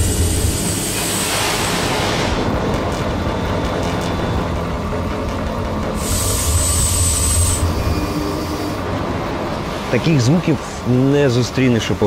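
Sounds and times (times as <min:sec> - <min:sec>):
machinery hiss: 0:00.0 - 0:02.6, 0:05.9 - 0:09.0
industrial machinery rumble: 0:00.0 - 0:12.0.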